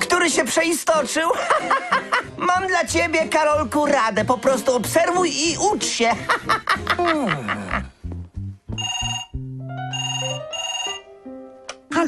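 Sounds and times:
cartoon background music: 2.2s - 12.0s
landline telephone ringing: 8.8s - 11.1s.

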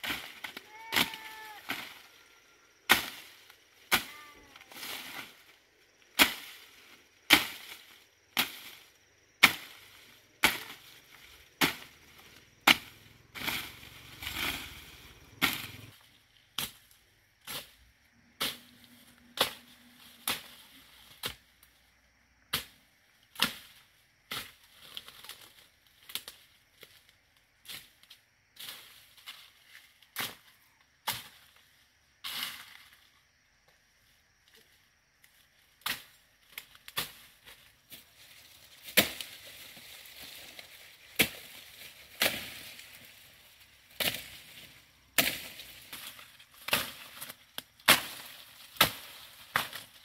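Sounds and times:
leaves rustling: 0.0s - 16.5s, 36.6s - 50.0s
blade chopping plant stems: 2.9s - 4.2s, 6.1s - 6.6s, 7.3s - 8.8s, 9.4s - 10.9s, 11.5s - 14.7s, 15.4s - 15.9s, 38.8s - 43.2s, 43.9s - 50.0s.

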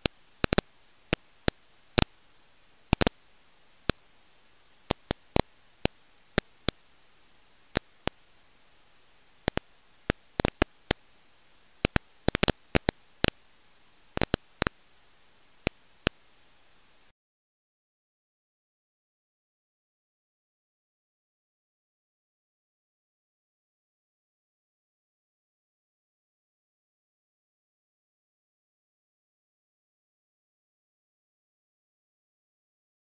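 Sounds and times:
old recording crackle and hiss: 0.0s - 17.1s.

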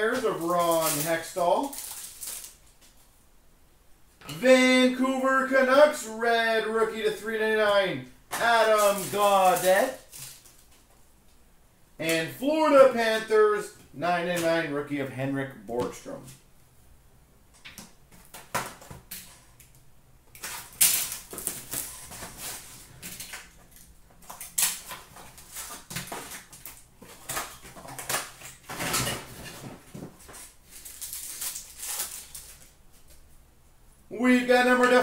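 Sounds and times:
packaging rustling and crackling: 0.0s - 3.1s, 8.3s - 11.0s, 20.3s - 33.2s.

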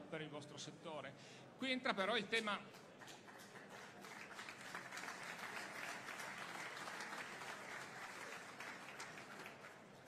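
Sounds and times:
large audience applauding: 2.9s - 10.0s.

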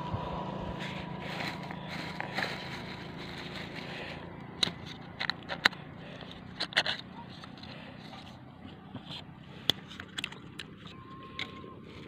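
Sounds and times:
low hum: 0.0s - 8.6s
plastic bag crinkling: 0.8s - 4.2s.

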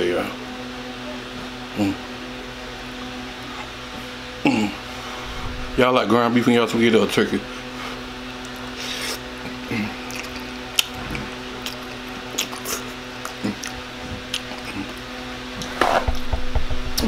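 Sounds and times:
slurping and chewing: 8.4s - 15.0s.

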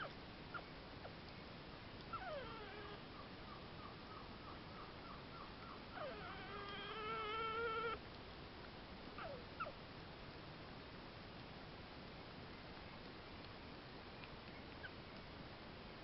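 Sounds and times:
porcupine squeaking: 2.1s - 3.0s, 5.9s - 8.0s
porcupine whining cry: 2.1s - 3.1s, 5.9s - 8.0s, 9.2s - 9.8s.

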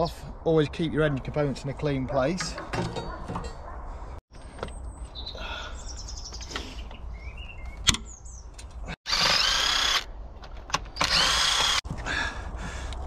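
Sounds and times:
impact wrench bursts: 9.1s - 10.1s, 11.0s - 11.8s.

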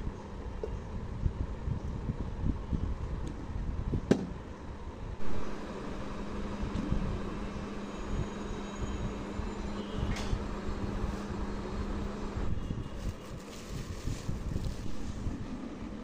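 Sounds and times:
steady low hum: 0.0s - 16.0s
low rumbling microphone noise: 12.3s - 16.0s.

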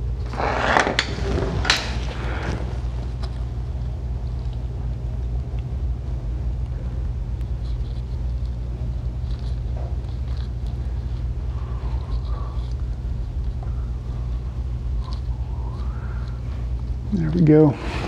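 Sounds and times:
low rumble: 0.0s - 17.1s.

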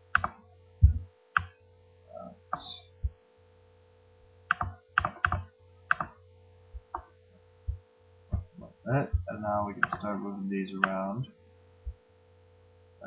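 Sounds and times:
low electrical hum: 0.0s - 13.0s
mouse and keyboard clicks: 4.5s - 6.2s, 9.8s - 10.1s.

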